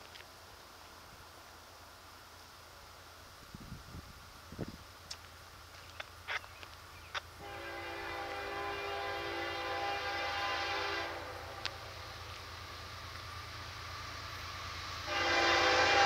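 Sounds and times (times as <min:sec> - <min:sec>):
locomotive air horn: 0:07.4 - 0:11.6, 0:15.0 - 0:16.0.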